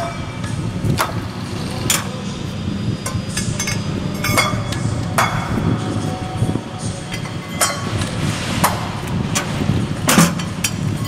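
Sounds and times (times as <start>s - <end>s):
steady low rumble: 0.0s - 11.0s
metal-on-metal clanks: 7.1s - 11.0s.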